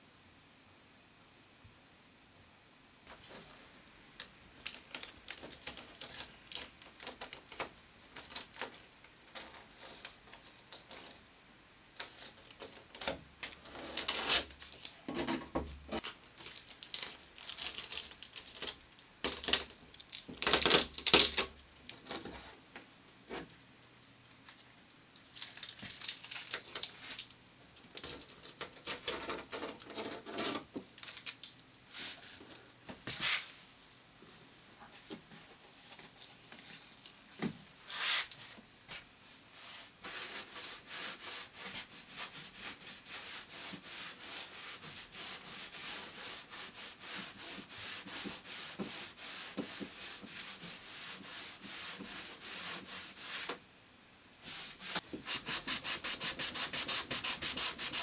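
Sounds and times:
paper masking peeling and tearing: 4.5 - 11.2, 12.0 - 14.9, 16.0 - 22.3, 27.9 - 31.5.

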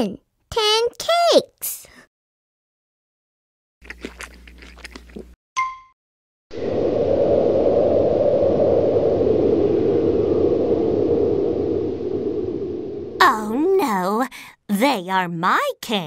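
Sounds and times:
cartoon chewing and crunching: 3.8 - 5.4.

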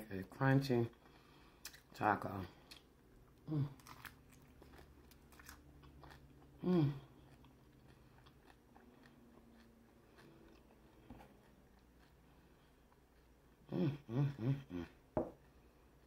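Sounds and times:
crunchy taco chewing: 2.6 - 13.7
person humming: 6.6 - 7.1, 13.7 - 15.0.

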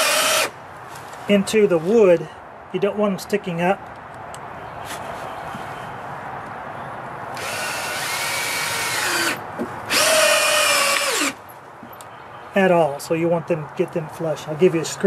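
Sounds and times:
power drill driving screws into wood: 0.0 - 0.5, 7.4 - 11.4.

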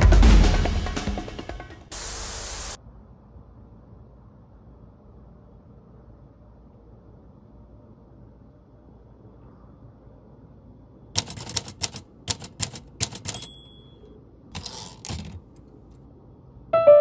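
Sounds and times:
metal compass clicks and taps: 11.4 - 14.0
short metallic ring: 13.2 - 14.1.

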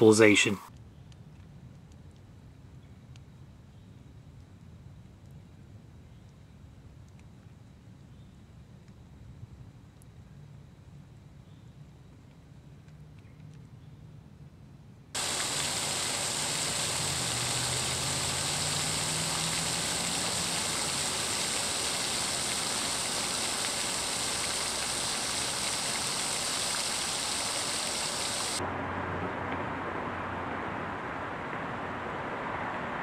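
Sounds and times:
fountain water splashing: 15.2 - 28.6.

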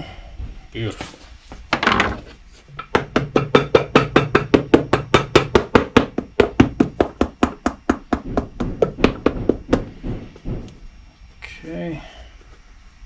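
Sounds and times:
hammer striking leather boot: 2.9 - 10.7.

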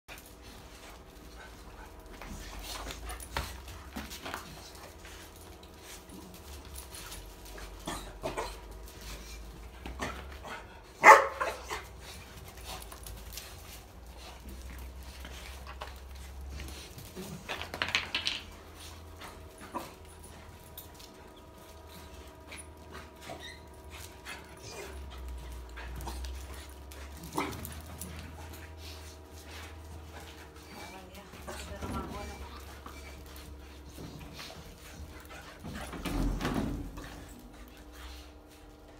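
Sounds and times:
puppies and dog barking: 10.9 - 12.0.

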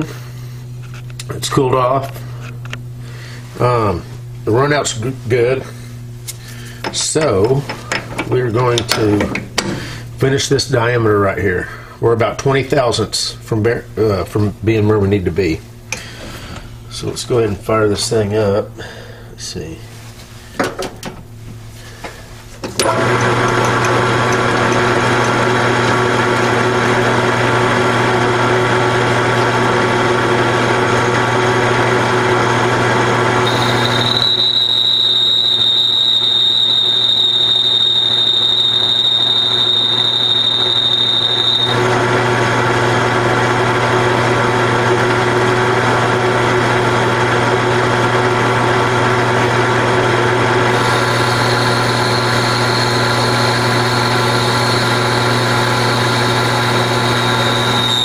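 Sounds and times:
steady high whine: 33.4 - 42.1, 50.7 - 58.0
metal lathe humming: 33.4 - 42.7, 50.3 - 58.0.

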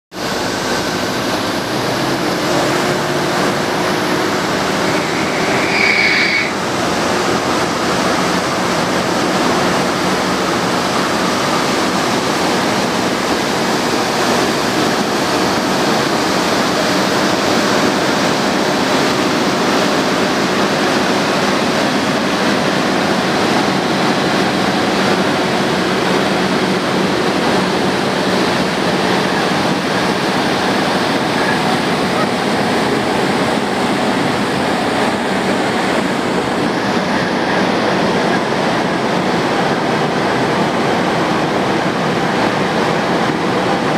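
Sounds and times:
sweeper truck suction rushing: 0.1 - 43.9
brief high-pitched tone: 4.2 - 6.6.

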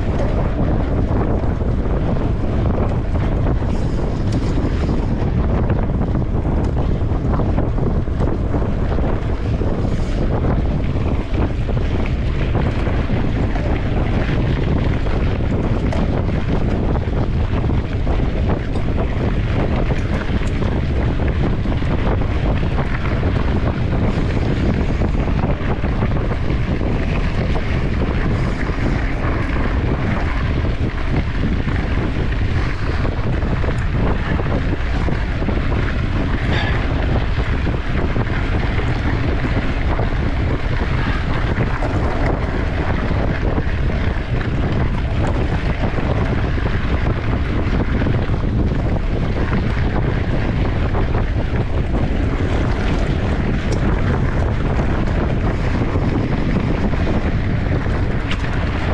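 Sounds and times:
bike clicks and rattles: 0.0 - 58.9
wind buffeting microphone: 0.0 - 58.9.

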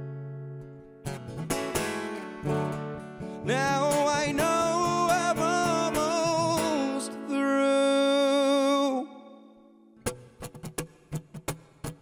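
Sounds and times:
strummed acoustic guitar: 0.0 - 12.0
man singing with vibrato: 3.3 - 9.8.

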